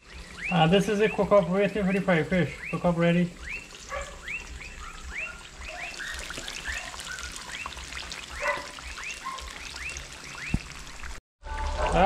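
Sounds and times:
fish sizzling in oil: 0.0s - 12.0s
animal chirping calls: 0.3s - 10.5s
low bubbling notes: 7.4s - 12.0s.

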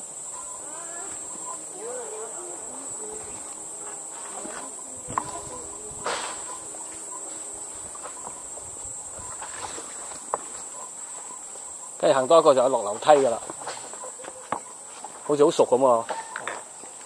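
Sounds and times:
insects buzzing: 0.0s - 17.0s
footsteps on wooden planks: 6.0s - 11.7s, 12.9s - 15.3s.

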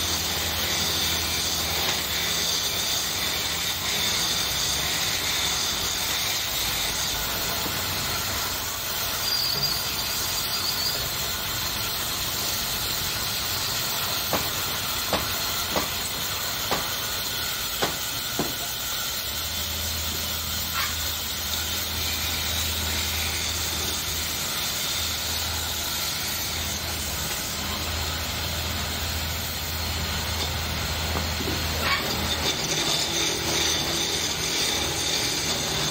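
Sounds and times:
wood lathe hiss: 0.0s - 35.9s.

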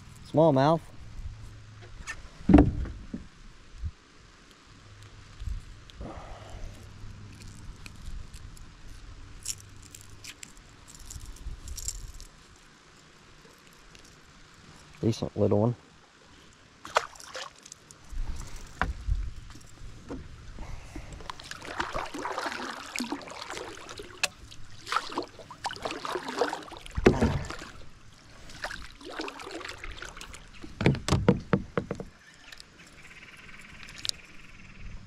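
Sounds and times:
knocks and thumps on hull: 2.4s - 3.3s, 26.9s - 27.8s, 30.6s - 32.2s
water splashing against kayak: 16.8s - 32.2s.

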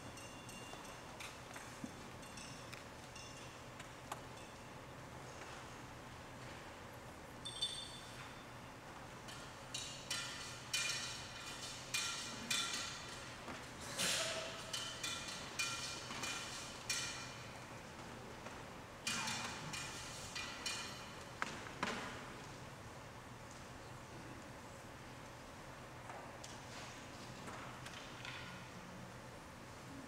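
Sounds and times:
metal and glass vessels clinking: 0.0s - 4.8s, 7.4s - 8.4s, 9.3s - 13.4s, 14.0s - 17.5s.

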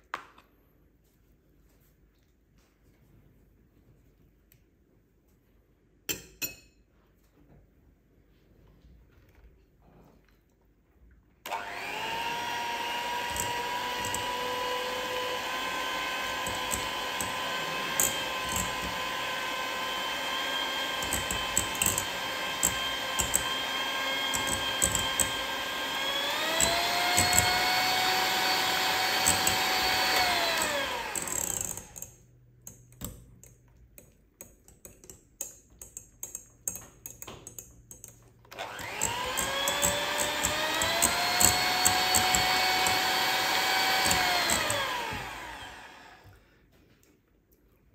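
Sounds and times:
electric kitchen mixer running: 11.5s - 32.0s, 38.6s - 46.3s.

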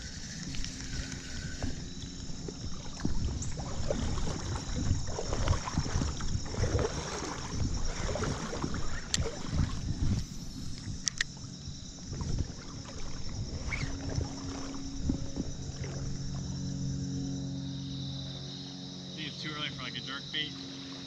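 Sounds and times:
creek water splashing: 0.0s - 21.0s
sharp click: 10.8s - 11.3s.

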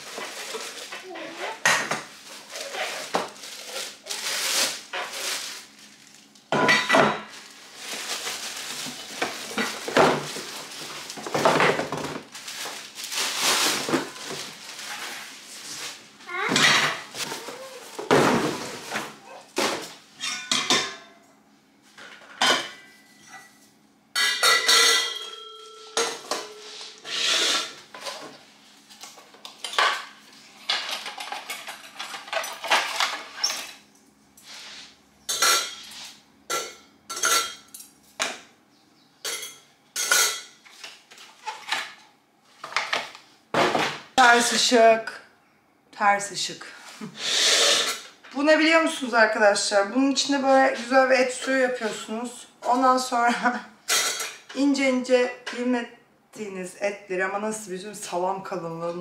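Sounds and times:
plastic wrapping rustling: 0.0s - 16.4s
forks and pot clinking: 24.2s - 27.7s, 35.3s - 37.9s, 39.2s - 40.6s, 53.9s - 54.4s.

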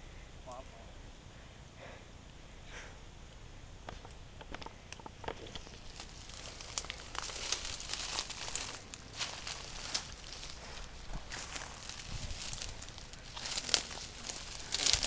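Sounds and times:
twigs crackling: 3.8s - 15.0s
branches brushing past: 5.4s - 15.0s
footsteps crunching through leaves: 5.7s - 15.0s.

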